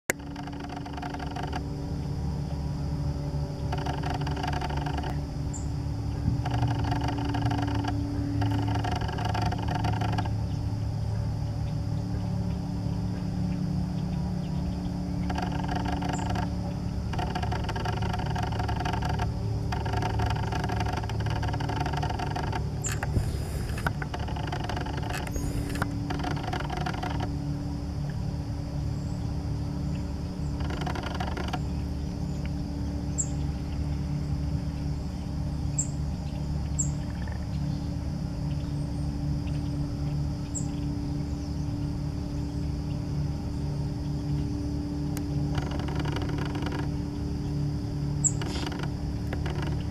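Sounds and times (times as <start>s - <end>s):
engine drone: 0.0s - 49.9s
faint high ticks: 0.1s - 2.0s, 3.6s - 10.6s, 12.4s - 27.4s, 30.0s - 31.8s, 45.0s - 47.1s.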